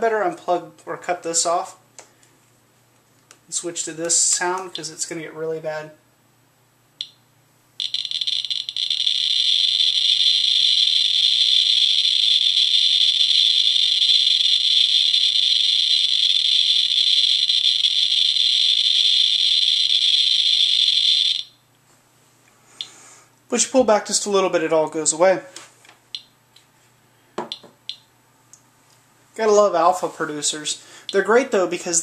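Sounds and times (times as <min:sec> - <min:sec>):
geiger counter continuous hiss: 0:06.8 - 0:21.6, 0:22.6 - 0:32.0
geiger counter clicking: 0:07.8 - 0:21.5.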